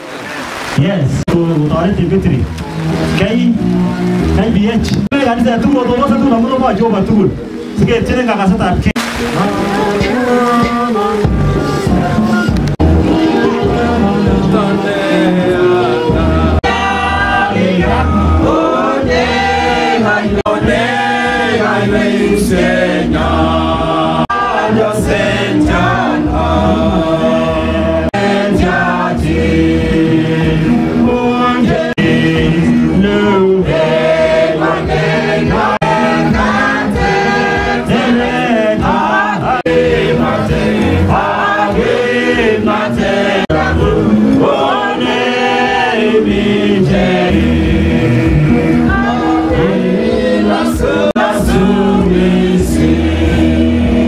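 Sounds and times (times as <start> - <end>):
electronic keyboard with bass: 0.6 - 54.0
man singing into microphone: 9.1 - 19.3, 23.8 - 34.1, 37.8 - 53.1
congregation singing a hymn: 9.1 - 54.0.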